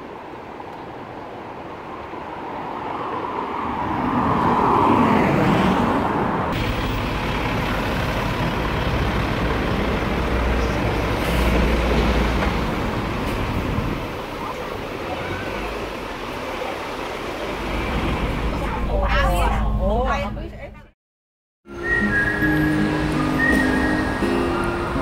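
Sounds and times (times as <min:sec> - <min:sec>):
vehicle passing by: 0:03.3 - 0:18.8
bus engine rumbling: 0:04.1 - 0:21.0, 0:21.8 - 0:25.0.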